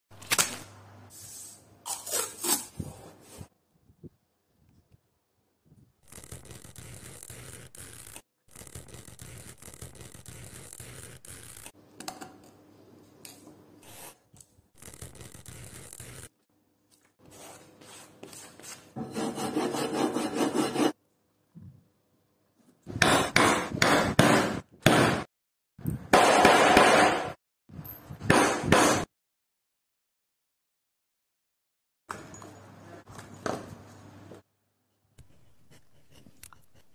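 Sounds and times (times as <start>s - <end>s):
marking tool scratching paper: 6.0s - 11.7s, 14.8s - 16.3s, 17.3s - 21.0s.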